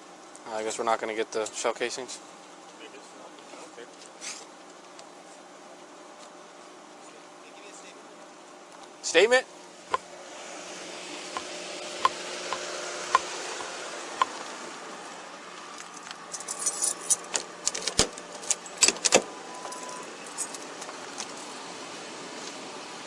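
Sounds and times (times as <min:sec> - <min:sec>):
keys and gear jangling: 0:15.8 - 0:21.4.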